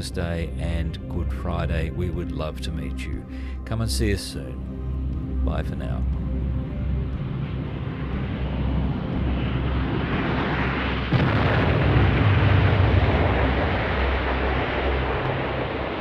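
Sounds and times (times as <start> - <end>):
low steady music: 0.0 - 16.0
loud rumble: 6.0 - 16.0
rushing noise: 6.2 - 16.0
loud blast: 8.8 - 16.0.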